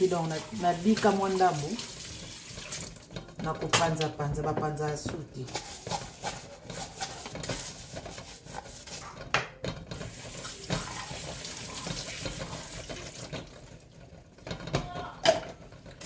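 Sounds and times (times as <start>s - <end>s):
dishes clinking in a sink: 2.6s - 5.2s, 14.4s - 15.7s
dishes scrubbed with a sponge: 5.4s - 9.4s, 10.0s - 13.4s.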